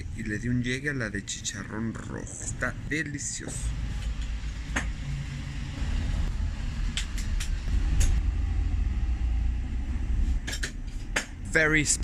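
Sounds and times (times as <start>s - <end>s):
steady low rumble: 0.0s - 10.5s.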